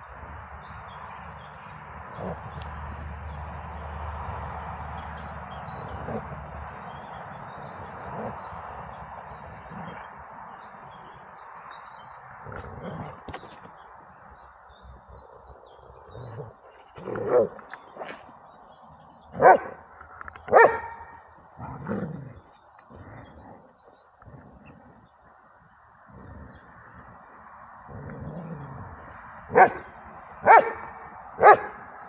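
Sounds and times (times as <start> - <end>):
dog barking: 19.4 - 19.8, 20.5 - 21.1, 29.5 - 29.8, 30.4 - 31.8.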